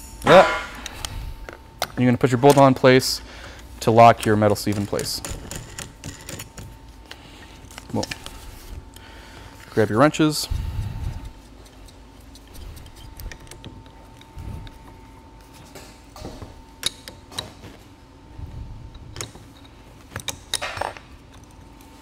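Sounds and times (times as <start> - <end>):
wrenches clinking and scraping: 4.4 - 6.7.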